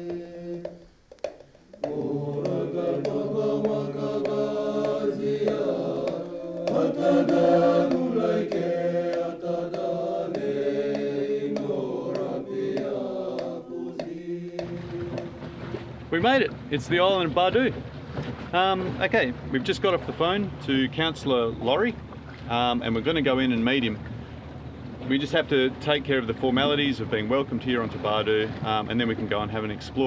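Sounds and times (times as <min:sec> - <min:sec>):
music with chant-like vocals: 0:00.0 - 0:00.8, 0:01.8 - 0:15.8.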